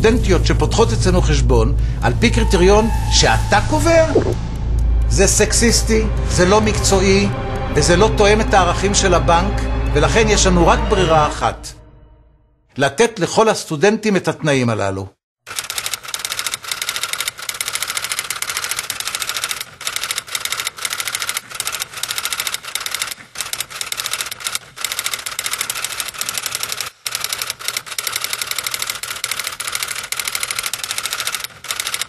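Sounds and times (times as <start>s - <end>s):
rapid typing clicks: 15.5s - 32.0s.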